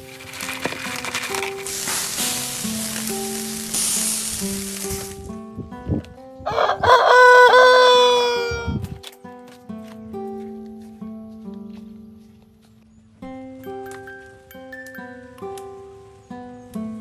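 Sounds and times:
skewers sizzling on grill: 0.0 - 5.4
soft background music: 0.0 - 17.0
rooster crowing: 6.4 - 8.8.

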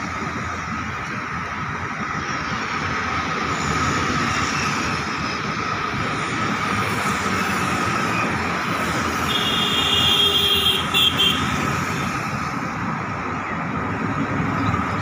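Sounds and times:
vehicles passing on road: 0.0 - 15.0.

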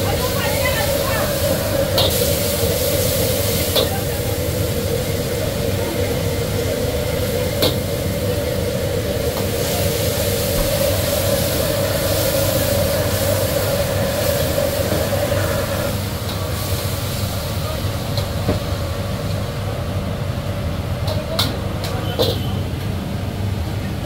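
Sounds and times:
pork sizzling in wok: 0.0 - 19.6
gas burner rushing: 0.0 - 19.9.

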